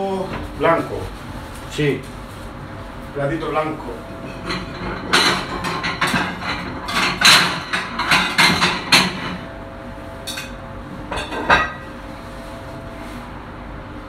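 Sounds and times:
crockery clinking and knocking: 0:04.0 - 0:12.0.

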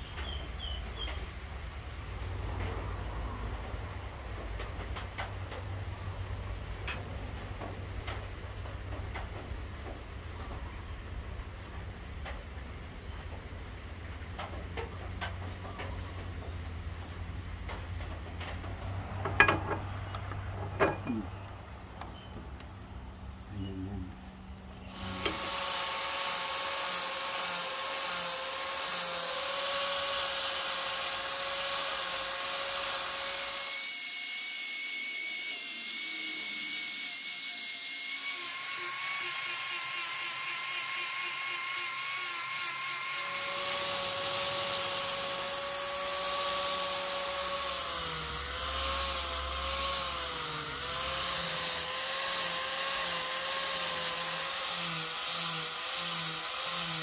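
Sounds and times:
angle grinder grinding steel: 0:24.8 - 0:57.0.

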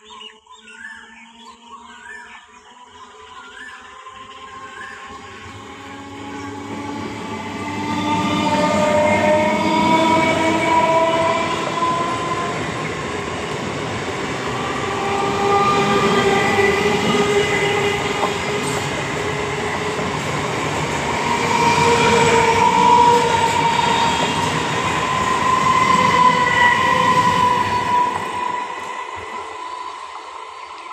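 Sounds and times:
train passing with whine: 0:01.0 - 0:30.9.

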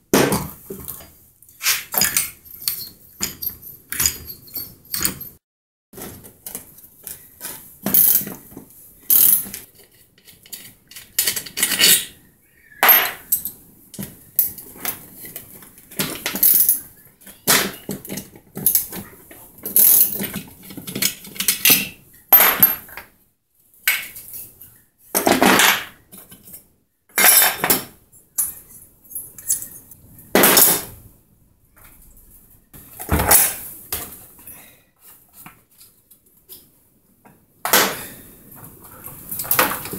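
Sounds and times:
metal tools clinking on a workbench: 0:00.8 - 0:05.4, 0:06.4 - 0:12.2, 0:12.8 - 0:23.1, 0:25.1 - 0:31.0.

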